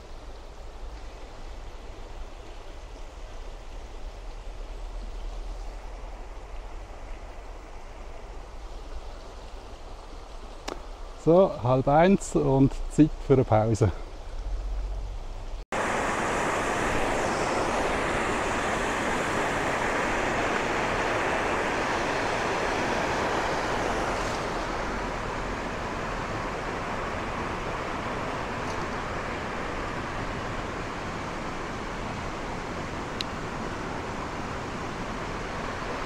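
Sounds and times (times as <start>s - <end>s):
river water rushing over rocks: 15.8s - 36.0s.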